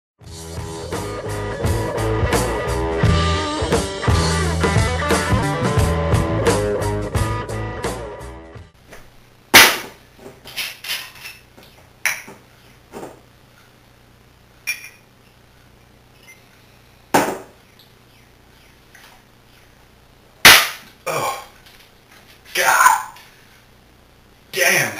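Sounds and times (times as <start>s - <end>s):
guitar rock music: 0.2s - 8.8s
sharp knock: 17.2s - 17.5s.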